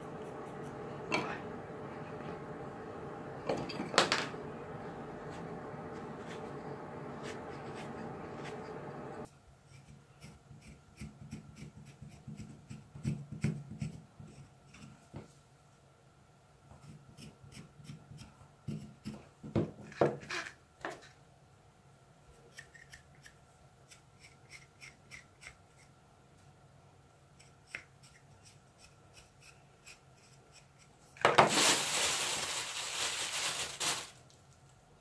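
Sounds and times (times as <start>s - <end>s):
plastic bag crinkling: 31.3s - 34.3s.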